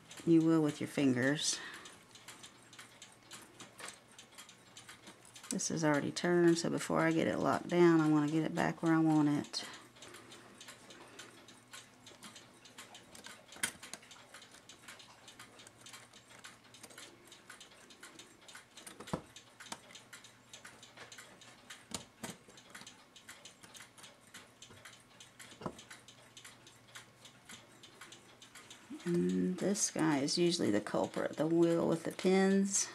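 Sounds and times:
mechanical clock ticking: 0.0s - 32.9s
clicks of clock parts handled: 10.0s - 29.1s.

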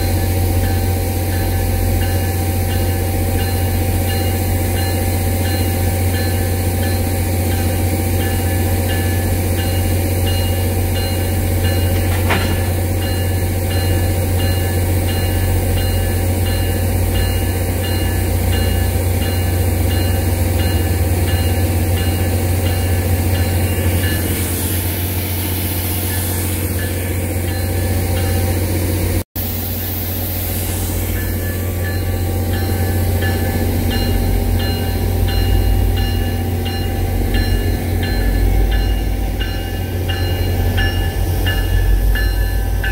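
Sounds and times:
hiss bursts: 29.4s - 32.0s.

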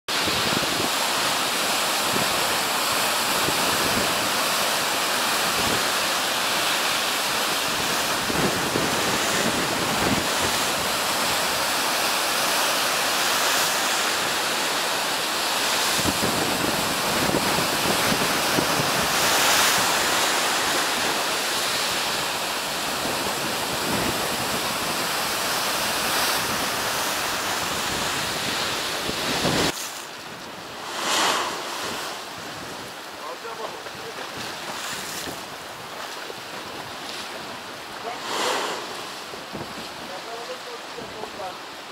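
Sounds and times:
surf breaking on rocky shore: 0.1s - 41.9s
water lapping against quay: 0.1s - 41.9s
wind buffeting microphone: 7.5s - 11.5s, 15.8s - 41.4s.

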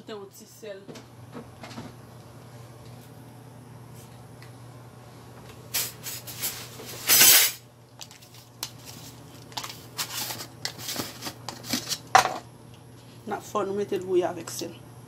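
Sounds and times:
low steady hum: 0.0s - 15.0s.

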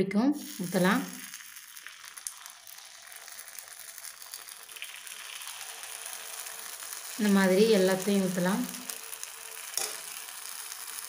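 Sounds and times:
hot oil sizzling in a pan: 0.4s - 11.0s.

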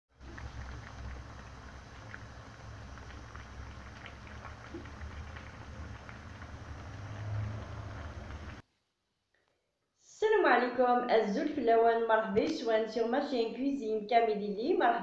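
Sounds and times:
stew bubbling in a pan: 0.1s - 8.6s
low rumble: 0.2s - 8.6s.

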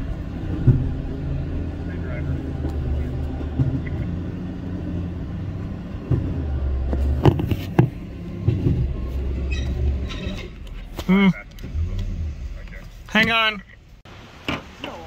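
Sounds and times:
truck engine running low: 0.0s - 14.0s
sharp clanks: 6.9s - 13.9s.

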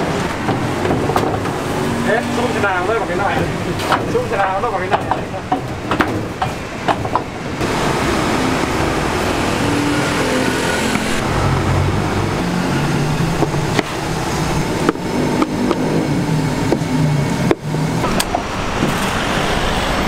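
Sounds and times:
street traffic: 0.0s - 20.0s
vehicle engine running close by: 7.6s - 20.0s.

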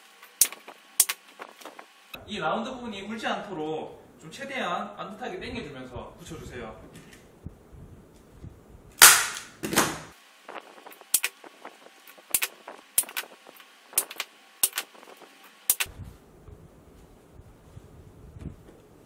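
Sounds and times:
staple gun snapping: 9.0s - 9.5s.

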